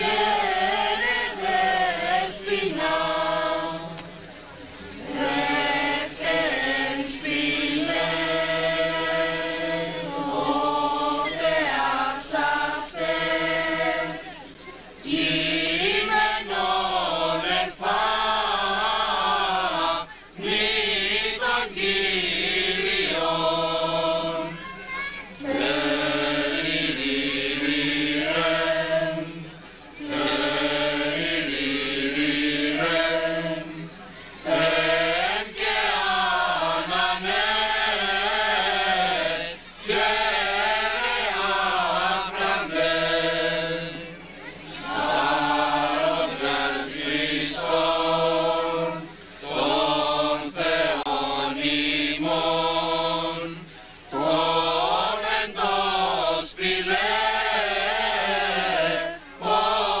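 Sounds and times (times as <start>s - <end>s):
men singing a chant: 0.0s - 4.0s, 15.1s - 24.6s, 25.5s - 44.1s, 44.8s - 60.0s.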